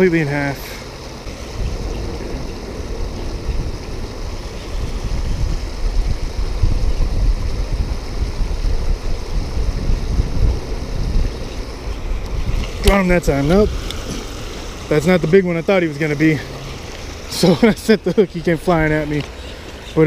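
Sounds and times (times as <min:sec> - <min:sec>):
river water rushing over weir: 0:00.0 - 0:20.0
wind buffeting microphone: 0:01.1 - 0:20.0.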